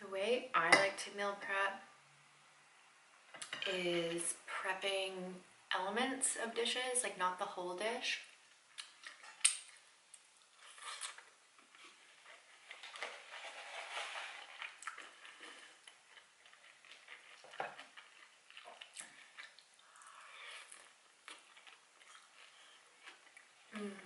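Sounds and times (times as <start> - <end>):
chewing: 10.4 - 23.6.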